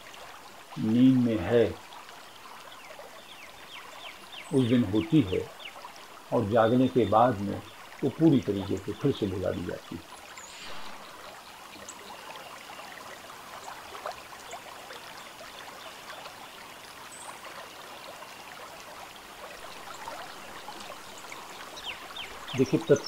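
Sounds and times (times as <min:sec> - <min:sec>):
steady background hiss: 0:19.2 - 0:23.0.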